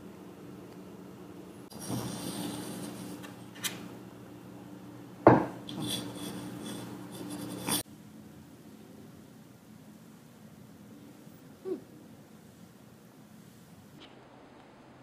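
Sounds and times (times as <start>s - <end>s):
cat fur rubbing on tabletop: 1.7s - 3.3s, 5.7s - 7.8s.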